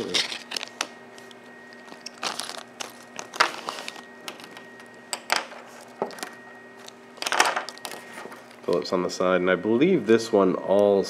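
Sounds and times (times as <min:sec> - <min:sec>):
plastic bags crinkling: 0:00.0 - 0:00.9, 0:01.7 - 0:04.6, 0:05.6 - 0:08.9
faint steady hum: 0:00.0 - 0:11.0.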